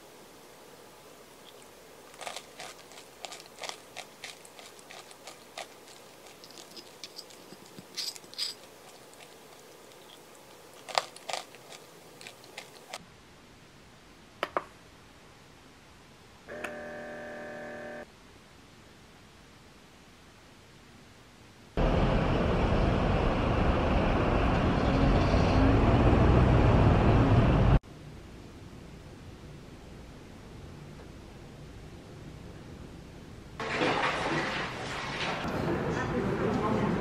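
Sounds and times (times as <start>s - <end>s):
granola crunching: 1.4s - 13.0s
metal spoon scraping ceramic bowl: 2.2s - 9.4s.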